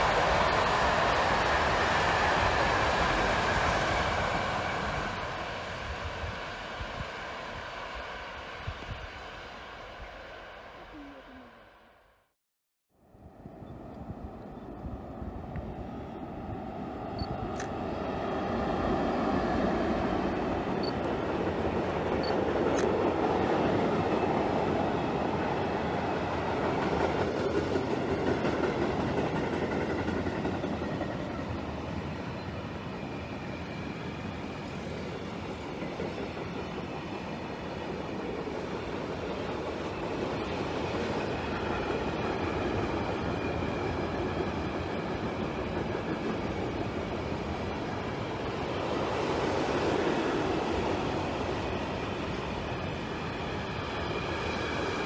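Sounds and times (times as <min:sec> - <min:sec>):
freight train wheels rumbling: 0:15.2 - 0:55.0.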